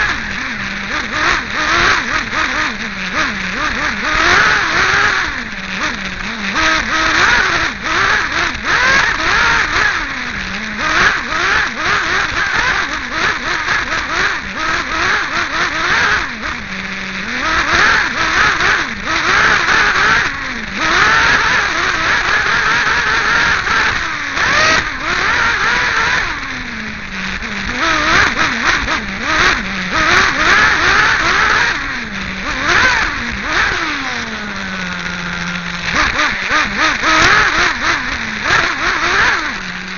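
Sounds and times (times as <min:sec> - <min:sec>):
nitro engine revving and idling: 0:00.0 - 0:39.9.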